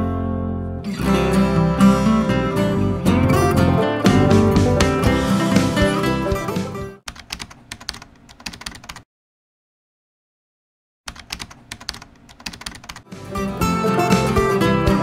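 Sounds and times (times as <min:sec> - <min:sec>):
acoustic guitar music: 0:00.0 - 0:07.0, 0:13.1 - 0:15.0
keyboard typing clicks: 0:07.1 - 0:09.0, 0:11.1 - 0:13.1.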